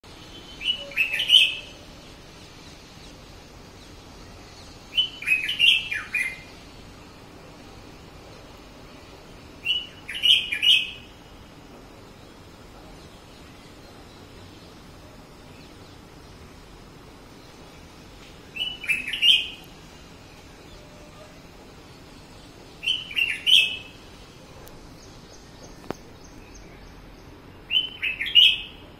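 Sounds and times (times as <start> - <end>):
bird singing rising and falling notes: 0.2 - 6.7, 9.5 - 11.2, 17.2 - 21.1, 21.9 - 24.2, 24.9 - 28.8.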